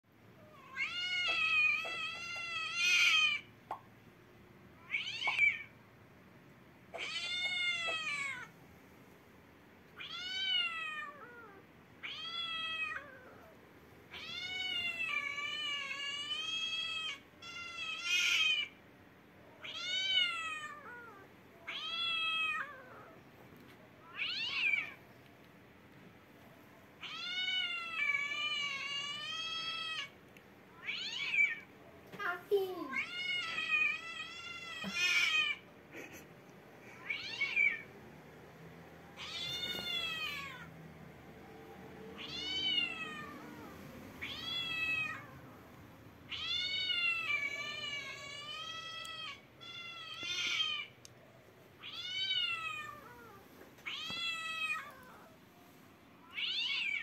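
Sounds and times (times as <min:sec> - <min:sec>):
cat meowing: 0:06.9 - 0:08.5, 0:10.0 - 0:13.5, 0:19.6 - 0:23.2, 0:30.8 - 0:31.7, 0:37.0 - 0:37.9, 0:39.2 - 0:40.7, 0:42.2 - 0:45.4, 0:46.3 - 0:51.0, 0:51.8 - 0:55.4, 0:56.3 - 0:57.0.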